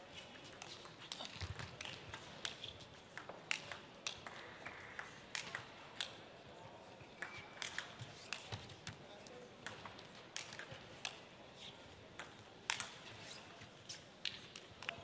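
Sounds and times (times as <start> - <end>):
low hall murmur: 0.0 - 15.0
table tennis ball clicks: 0.6 - 6.2, 7.2 - 8.7, 12.2 - 13.0.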